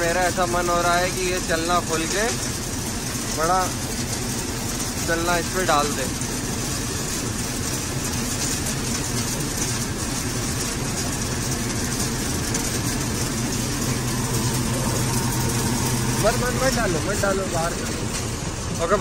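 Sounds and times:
thresher mechanical churning: 0.0s - 19.0s
tractor diesel engine hum: 8.8s - 19.0s.

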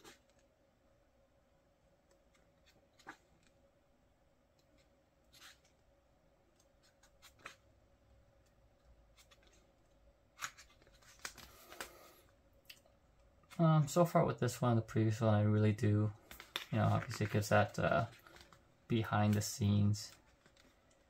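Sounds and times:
book pages turning: 4.7s - 5.8s, 6.8s - 7.6s, 9.1s - 9.7s, 10.3s - 12.2s, 16.2s - 18.6s, 19.2s - 21.0s.

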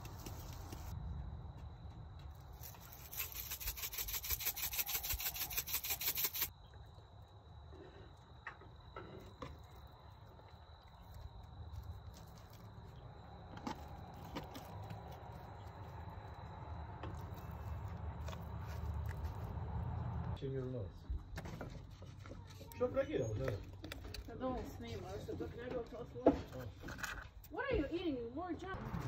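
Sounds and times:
pepper flakes rattling in shaker: 2.6s - 6.5s.

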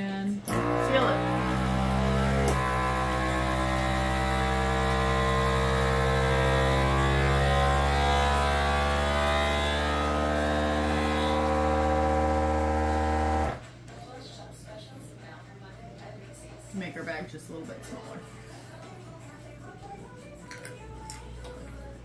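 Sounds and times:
vacuum sealer pump humming: 0.4s - 13.6s.

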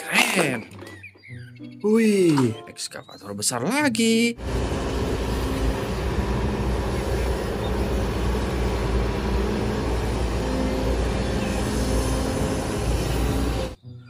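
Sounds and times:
excavator diesel engine running: 4.4s - 13.8s.

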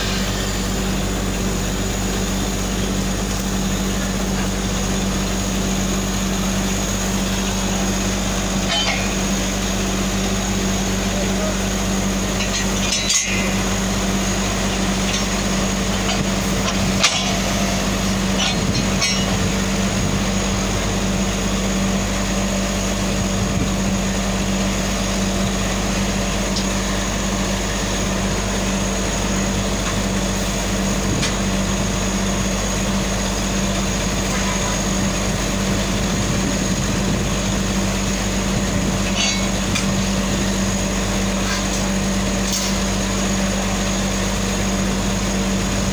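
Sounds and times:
drilling rig engine drone: 0.0s - 45.9s
sharp metallic knocks: 8.7s - 9.2s, 18.4s - 19.5s.

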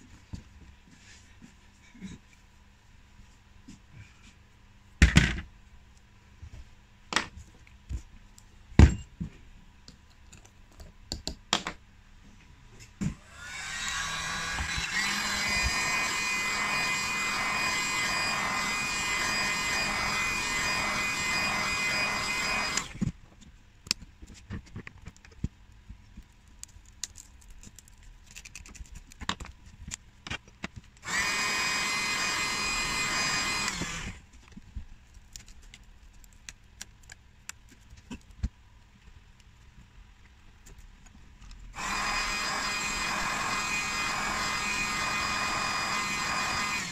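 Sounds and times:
heat gun blowing: 13.2s - 23.0s, 31.0s - 34.2s, 41.8s - 46.9s.

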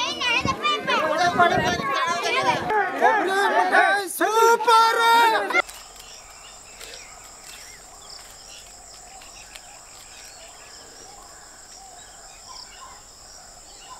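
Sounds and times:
faint bird chirps: 5.6s - 13.9s
insects trilling: 5.6s - 13.9s.

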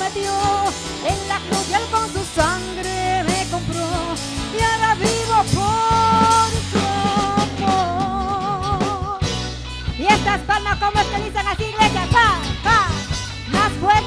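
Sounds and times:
drum kit: 0.0s - 14.0s
sliding lead melody: 0.0s - 14.0s
worship band music: 0.0s - 14.0s.

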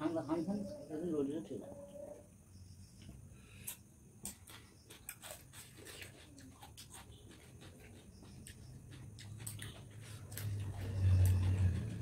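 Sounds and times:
chewing crunching cucumber: 3.7s - 12.0s.

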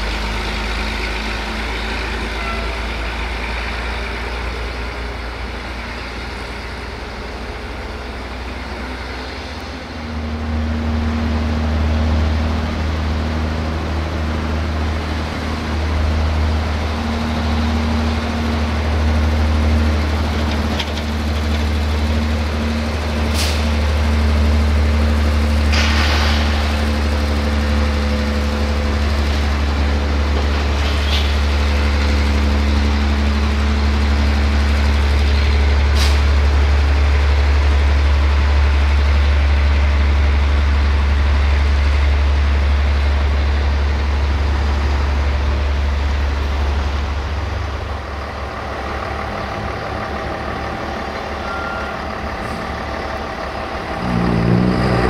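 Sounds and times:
truck engine running: 0.0s - 55.0s
air brake hiss: 23.3s - 23.8s, 36.0s - 36.3s.

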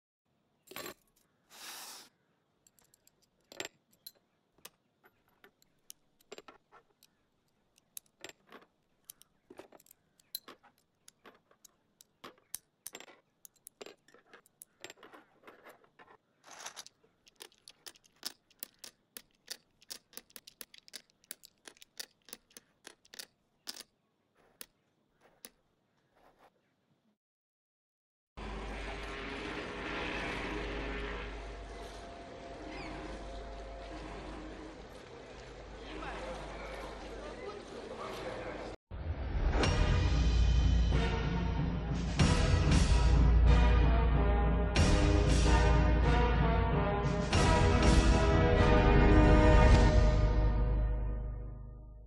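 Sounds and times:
plastic pieces clicking on wood floor: 2.7s - 25.6s
plastic pieces rattling and shuffling: 2.8s - 25.5s.

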